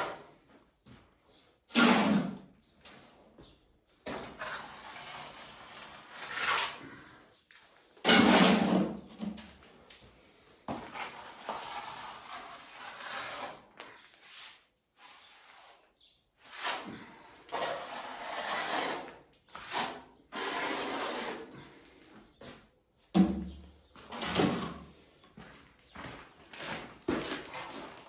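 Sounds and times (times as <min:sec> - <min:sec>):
trowel scraping mortar: 0:01.7 - 0:02.6, 0:04.1 - 0:07.3, 0:08.0 - 0:09.5, 0:10.8 - 0:21.9.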